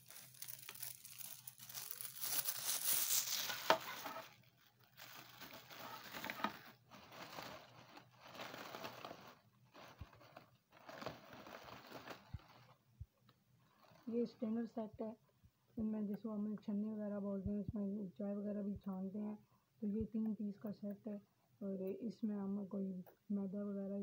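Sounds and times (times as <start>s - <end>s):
plastic packaging crinkling: 0.0s - 12.8s.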